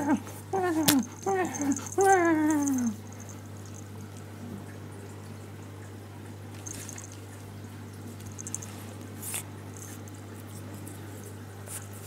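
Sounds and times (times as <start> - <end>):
steady low hum: 0.0 - 12.0
cat fur rustling: 6.6 - 7.2, 8.2 - 10.1.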